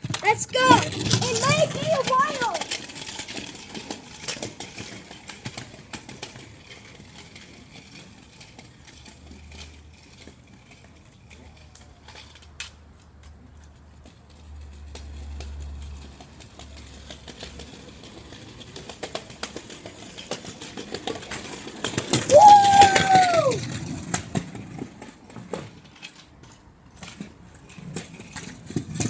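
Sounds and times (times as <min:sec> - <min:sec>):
scooter wheels rolling on pavement: 0:00.0 - 0:29.0
high-pitched whoop: 0:22.3 - 0:23.7.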